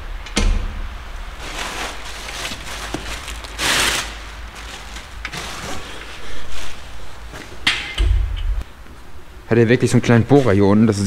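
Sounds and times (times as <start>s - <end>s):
packaging rustling and clattering: 1.3s - 7.6s.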